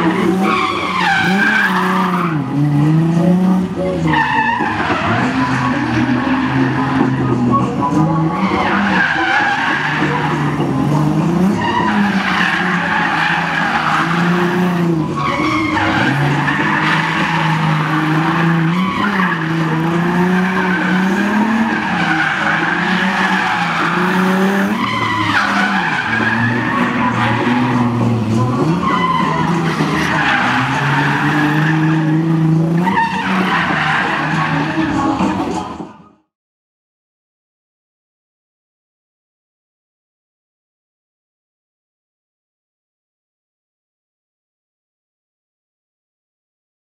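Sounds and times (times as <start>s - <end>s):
car engine revving: 0.0s - 35.8s
tyres skidding and squealing: 0.0s - 36.2s.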